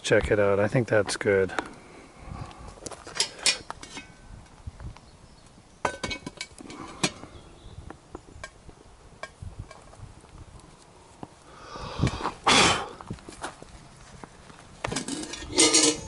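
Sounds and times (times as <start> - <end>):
metal pot clinking on grate: 3.2 - 4.2, 5.8 - 7.2, 14.9 - 16.0.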